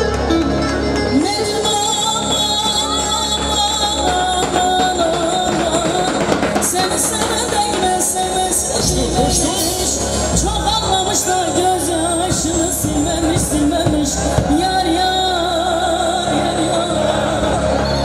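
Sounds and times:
electronic keyboard accompaniment: 0.0 - 18.0
woman singing into a microphone: 1.0 - 18.0.

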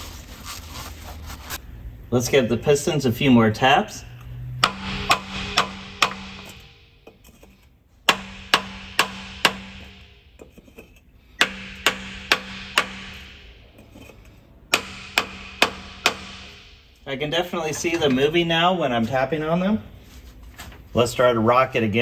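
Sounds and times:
hammer tapping wooden block: 8.1 - 10.0, 11.4 - 13.4, 14.7 - 16.6.

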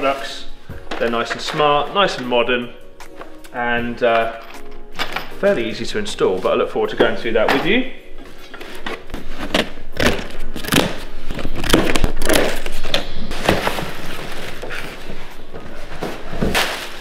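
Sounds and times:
plastic wrapping crackling: 8.5 - 17.0
cardboard flaps scraping: 8.6 - 17.0.

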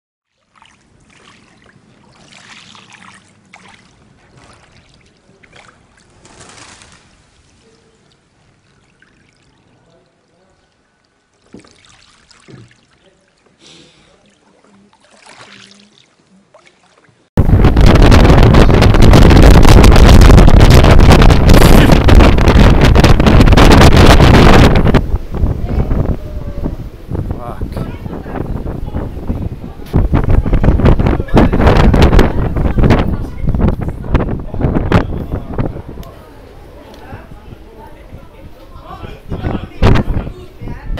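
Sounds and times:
strong wind buffeting microphone: 17.4 - 40.9.

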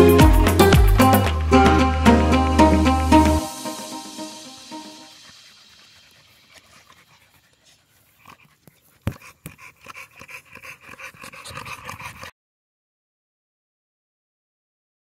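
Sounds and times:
dog panting quickly: 4.8 - 12.3.

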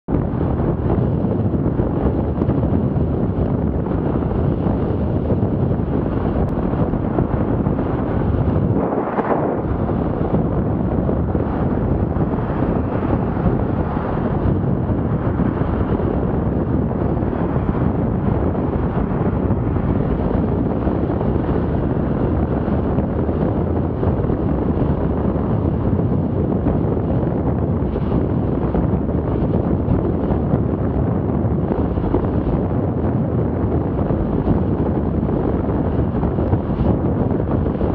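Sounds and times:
wind buffeting microphone: 0.0 - 37.9
road and traffic noise: 3.0 - 32.6.

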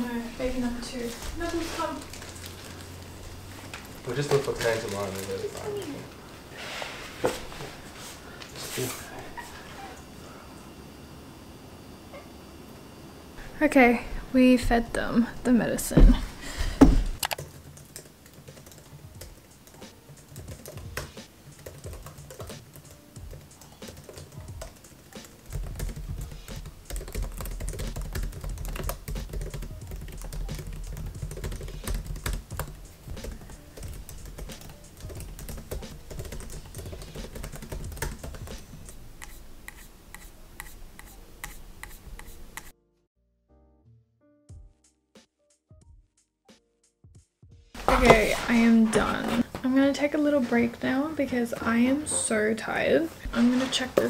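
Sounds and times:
laptop keyboard typing: 17.2 - 42.7.

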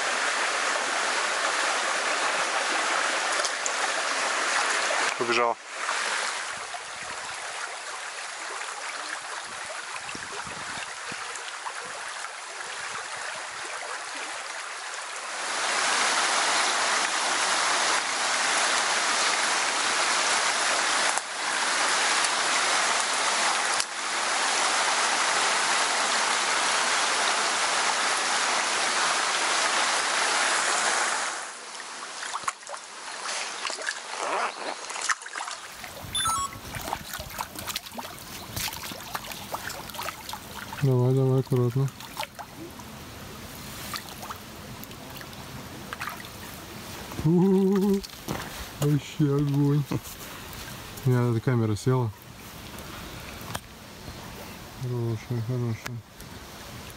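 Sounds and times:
stream rushing over stones: 0.0 - 56.9.

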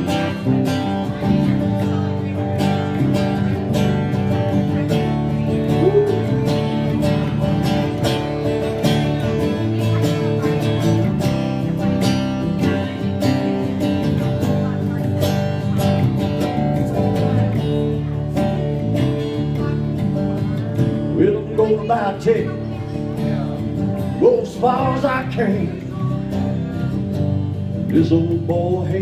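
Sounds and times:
acoustic guitar strumming: 0.0 - 29.0
electric bass playing: 0.0 - 29.0.

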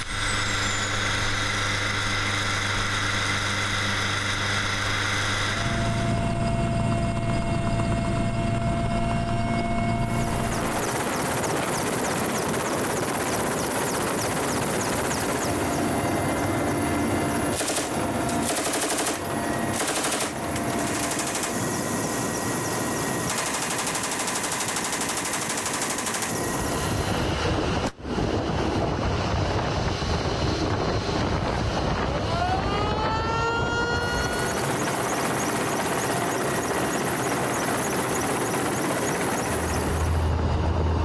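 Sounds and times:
rising whine: 0.0 - 23.3, 26.4 - 41.0
helicopter engines and rotor: 0.0 - 41.0
machine-gun fire: 17.4 - 21.8, 23.3 - 26.4.

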